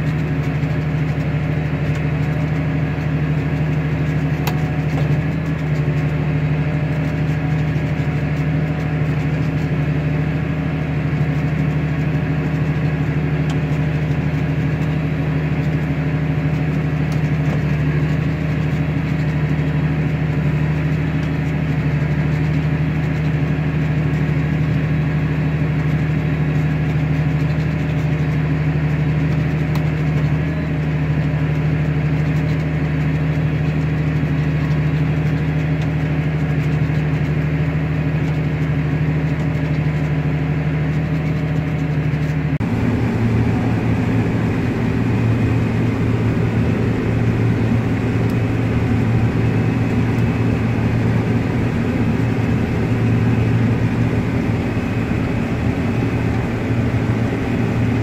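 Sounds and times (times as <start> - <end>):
combine harvester running: 0.0 - 58.0
tractor diesel engine under load: 0.0 - 58.0.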